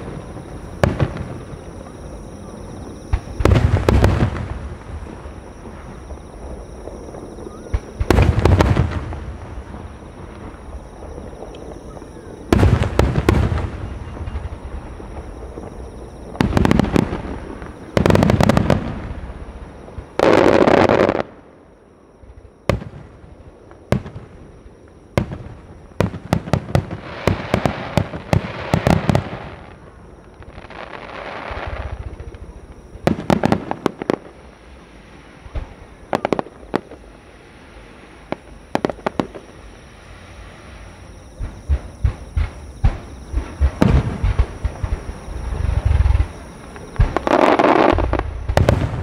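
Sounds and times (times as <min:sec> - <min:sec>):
firework booms: 0:00.0 - 0:02.0, 0:02.7 - 0:21.4, 0:41.4 - 0:49.0
firework crackling: 0:25.2 - 0:29.8, 0:30.4 - 0:49.0.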